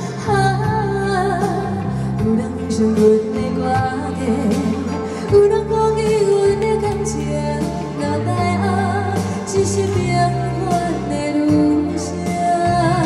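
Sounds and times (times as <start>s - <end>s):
backing track with bass: 0.0s - 13.0s
woman singing: 0.0s - 13.0s.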